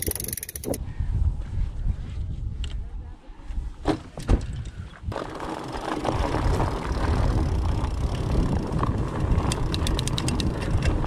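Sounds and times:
bike tyres rumbling on dirt: 0:04.7 - 0:11.0.

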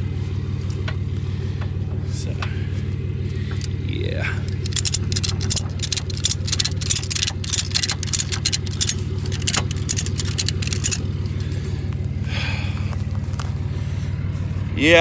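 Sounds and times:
car engine idling: 0:00.0 - 0:15.0
sharp clicks and crunches: 0:03.5 - 0:03.8, 0:04.4 - 0:12.2, 0:12.8 - 0:13.8.

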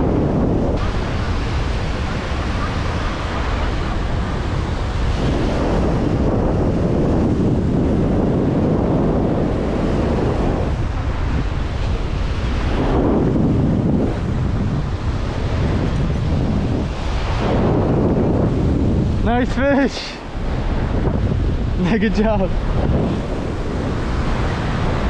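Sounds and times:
wind buffeting microphone: 0:00.0 - 0:25.0
surf breaking over rocks: 0:09.4 - 0:25.0.

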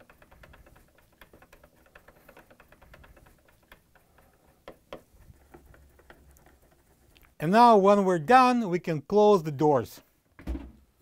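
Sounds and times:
nut driver ticking and clicking: 0:00.0 - 0:07.3.

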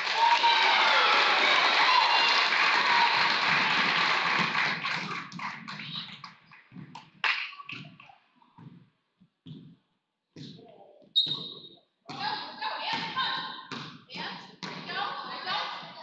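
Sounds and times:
crowd applause and chatter: 0:00.0 - 0:06.7
basketball bouncing on hardwood floor: 0:08.6 - 0:10.6, 0:12.9 - 0:15.0.

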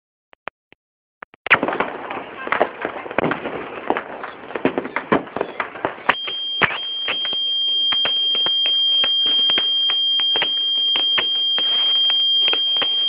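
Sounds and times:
fireworks crackling and popping: 0:01.4 - 0:13.0
steady high-pitched tone: 0:06.1 - 0:13.0.

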